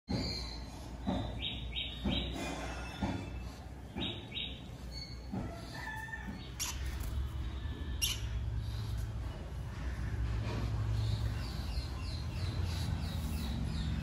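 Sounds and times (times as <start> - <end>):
lovebird chirping: 7.9 - 8.4.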